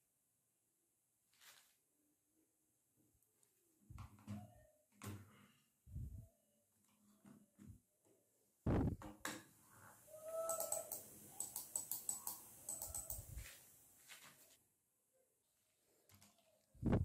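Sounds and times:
mouse buttons clicking: 0:10.3 - 0:13.4
soft keyboard key presses: 0:10.5 - 0:13.4.

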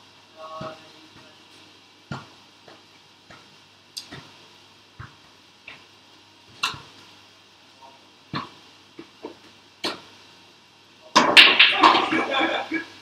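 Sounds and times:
pool balls clicking: 0:11.1 - 0:12.9.

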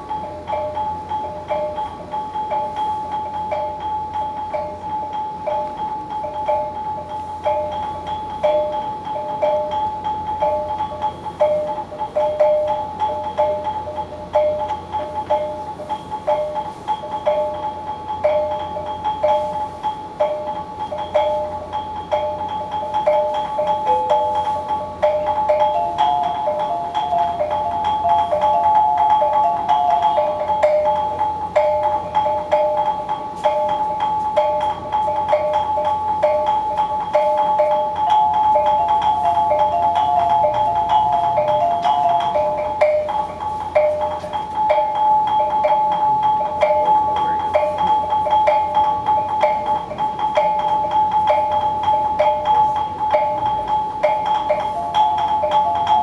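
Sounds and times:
steady held high tone: 0:00.0 - 0:56.0
tuned percussion ringing notes: 0:00.0 - 0:56.0.

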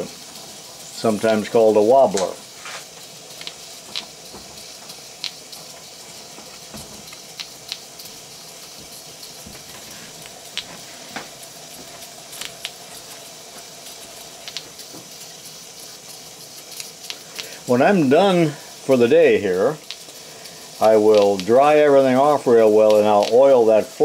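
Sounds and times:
steam engine clicking: 0:00.0 - 0:24.0
steam hissing: 0:00.0 - 0:24.0.

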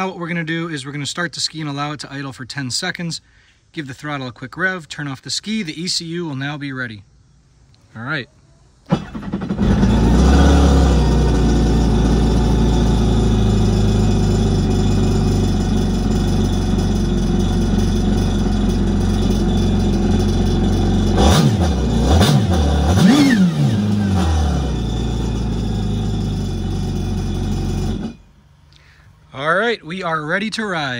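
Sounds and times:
jet ski engine idling and revving: 0:08.9 - 0:28.3.

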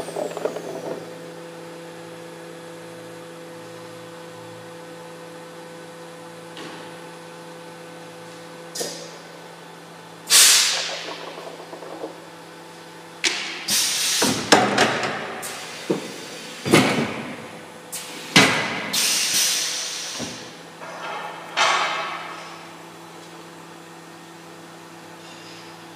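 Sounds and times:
electrical hum: 0:00.0 - 0:19.0
mechanical clanks and knocks: 0:10.4 - 0:12.4, 0:13.2 - 0:16.1, 0:20.2 - 0:22.6.

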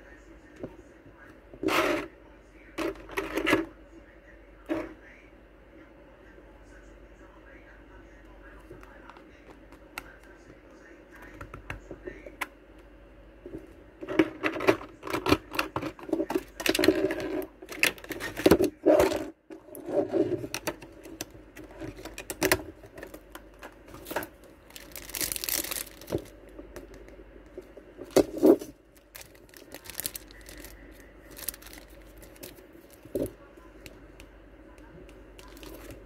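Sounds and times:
plastic packaging crinkling: 0:16.2 - 0:18.6, 0:20.4 - 0:27.0, 0:27.6 - 0:34.0, 0:35.4 - 0:36.0.

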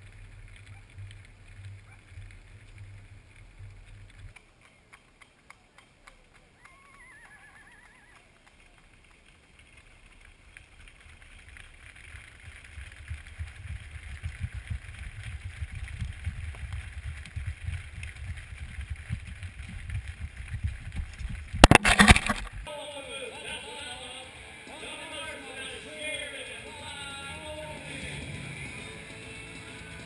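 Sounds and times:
hooves on gravel and pavement: 0:00.0 - 0:22.6.

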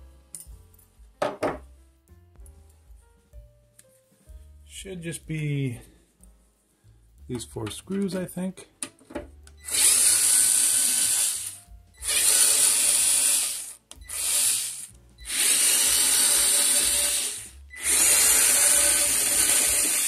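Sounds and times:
electric screwdriver running: 0:09.6 - 0:20.0.

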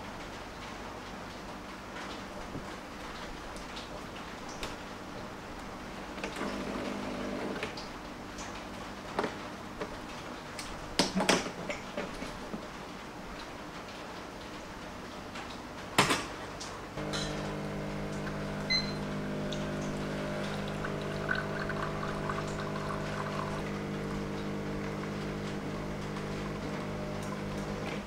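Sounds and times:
espresso machine pump humming: 0:06.4 - 0:07.6, 0:17.0 - 0:28.0
espresso dribbling into glass: 0:17.0 - 0:28.0
espresso machine click: 0:17.0 - 0:28.0.

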